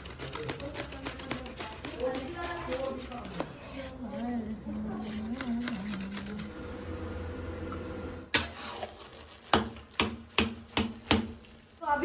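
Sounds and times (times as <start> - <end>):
metal spatula scraping iron pan: 8.3 - 9.8.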